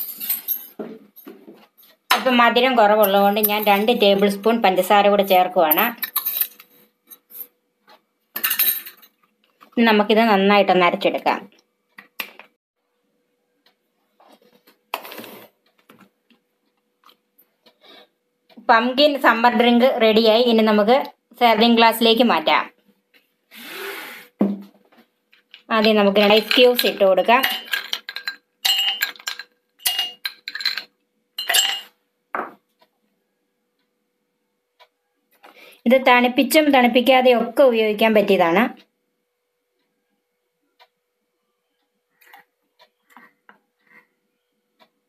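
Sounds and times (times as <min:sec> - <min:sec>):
ice cubes clinking in glass: 0:26.4 - 0:31.9.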